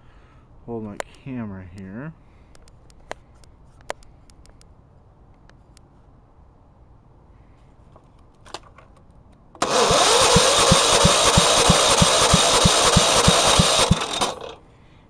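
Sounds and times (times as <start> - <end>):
starter cranking engine: 9.6 - 14.6.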